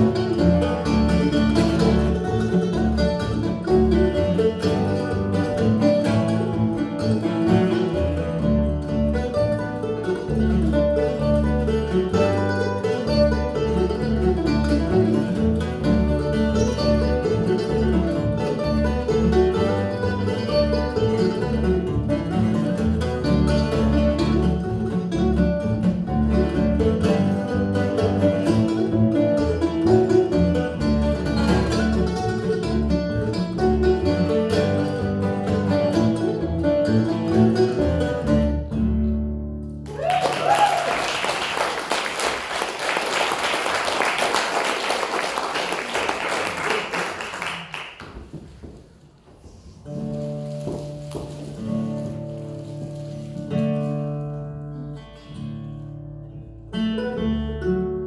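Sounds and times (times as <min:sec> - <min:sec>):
bluegrass trio playing: 0:00.0 - 0:40.1, 0:49.8 - 0:58.0
audience applause: 0:39.8 - 0:48.6.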